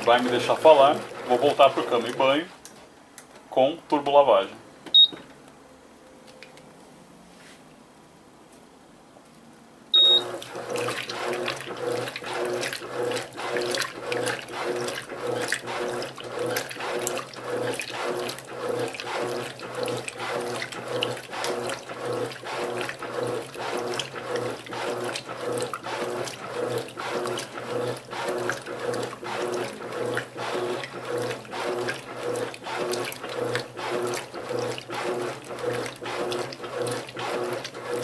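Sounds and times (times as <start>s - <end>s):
washing machine motor hum: 0.0s - 2.6s, 9.9s - 38.0s
water sloshing: 0.0s - 2.6s, 10.2s - 38.0s
washing machine beep: 4.9s - 5.3s, 9.9s - 11.0s.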